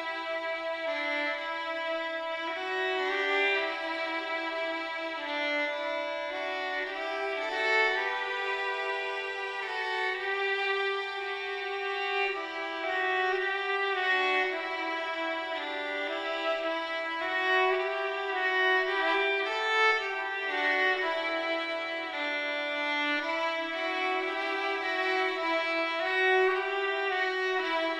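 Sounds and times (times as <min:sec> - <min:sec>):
slow violin melody: 0:00.0 - 0:27.9.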